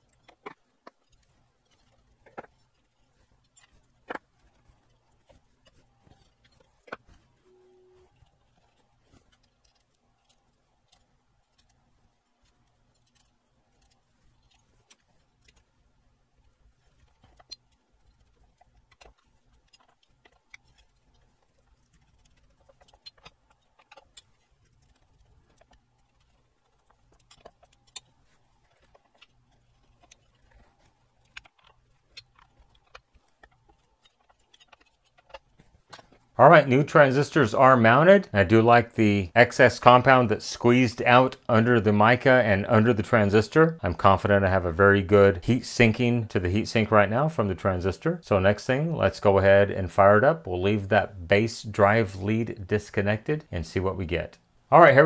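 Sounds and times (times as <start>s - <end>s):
small metallic clicks and taps: 0.0s - 15.8s, 16.4s - 36.4s.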